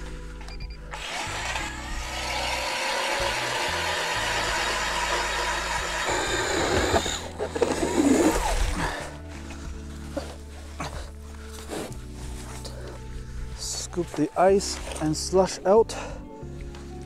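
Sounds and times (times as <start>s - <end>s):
ice auger motor whine: 0.5s - 9.6s
auger bit grinding ice: 0.9s - 9.2s.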